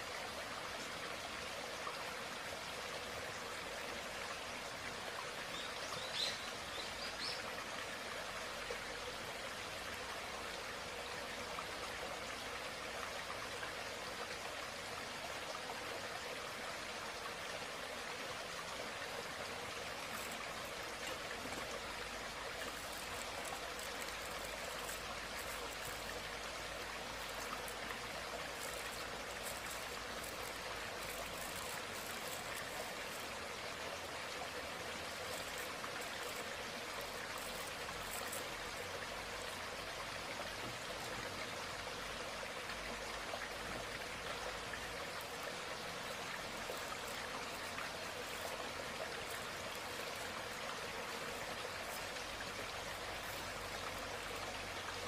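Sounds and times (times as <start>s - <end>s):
steady hiss: 0.0s - 55.0s
faint crackles of husks peeled: 19.8s - 38.9s, 46.0s - 54.4s.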